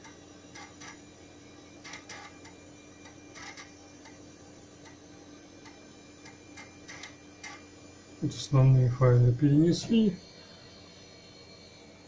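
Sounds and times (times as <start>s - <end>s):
disk drive head ticks: 1.8s - 4.2s, 5.6s - 7.6s.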